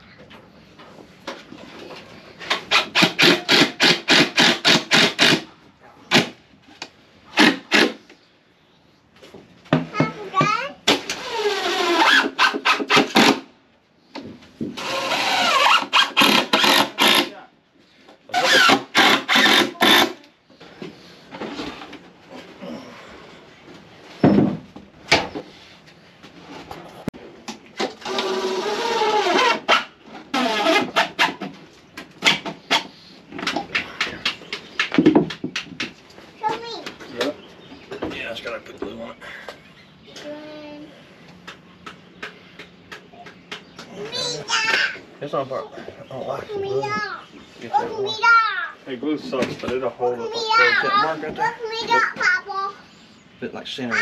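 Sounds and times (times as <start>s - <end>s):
cordless drill driving screws: 14.8s - 17.3s, 18.4s - 20.2s, 28.0s - 29.7s.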